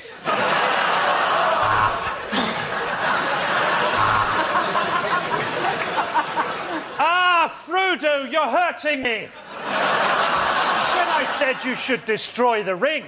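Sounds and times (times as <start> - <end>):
studio audience laughing: 0.1 - 7.0, 9.2 - 12.4.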